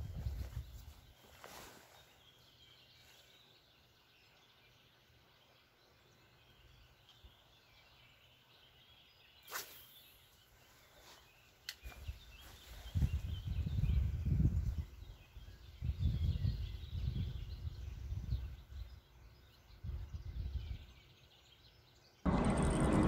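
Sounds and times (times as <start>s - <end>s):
brief swish: 9.4s - 10.0s.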